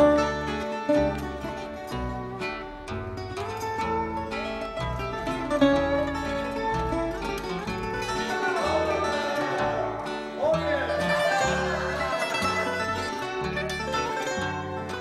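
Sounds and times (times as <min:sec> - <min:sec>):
bass line: 0:00.0 - 0:15.0
plucked string instruments: 0:00.0 - 0:15.0.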